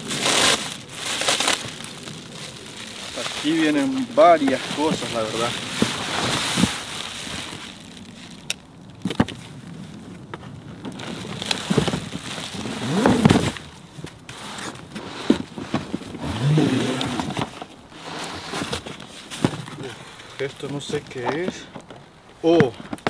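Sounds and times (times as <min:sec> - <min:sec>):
cardboard scraping: 0:00.0 - 0:07.9, 0:10.4 - 0:21.7
cardboard flaps pulled open: 0:11.0 - 0:13.7.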